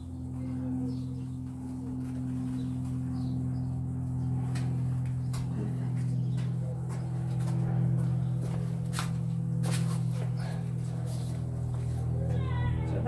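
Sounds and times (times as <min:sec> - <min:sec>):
droning chords music: 0:00.0 - 0:13.0.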